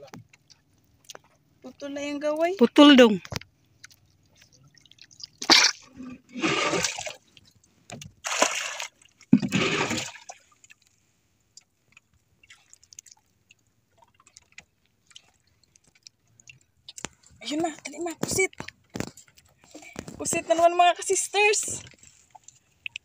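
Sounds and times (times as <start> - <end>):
sea water splashing: 2.8 - 7.4, 8.2 - 10.9, 12.4 - 17.4.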